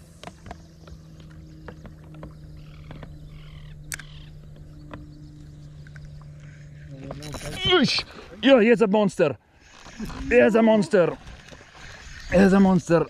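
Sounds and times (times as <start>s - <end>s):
electric motor humming: 0.0s - 8.4s
rod and reel clicks: 1.8s - 5.1s.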